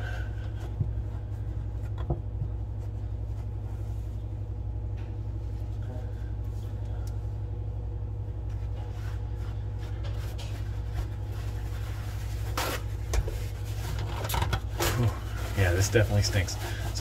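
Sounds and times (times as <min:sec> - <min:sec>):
low hum: 0:00.0 - 0:17.0
paper towels rustling: 0:08.4 - 0:17.0
paper crumpling and scraping: 0:08.6 - 0:17.0.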